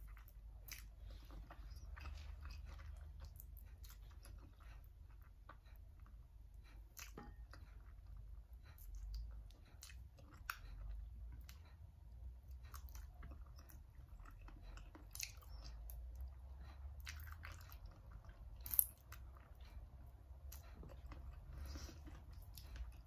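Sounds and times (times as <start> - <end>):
chewing: 0.0 - 23.0.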